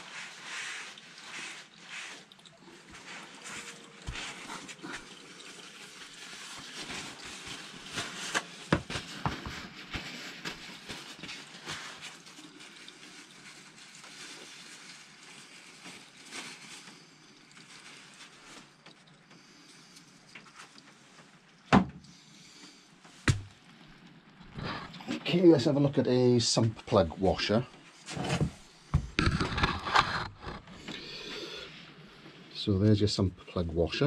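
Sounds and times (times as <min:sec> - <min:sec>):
oil trickling into a plastic bowl: 0:00.0 - 0:21.6.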